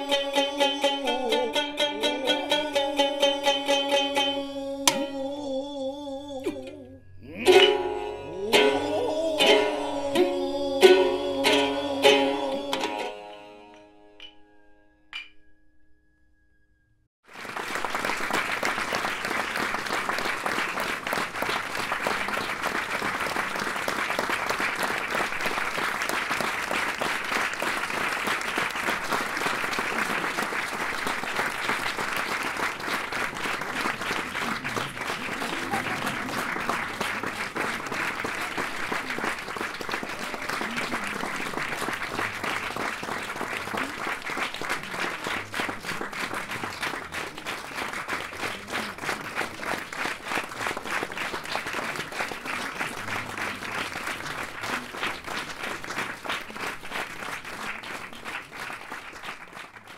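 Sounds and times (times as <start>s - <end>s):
shamisen note: 0.0s - 16.4s
audience applause: 17.2s - 59.9s.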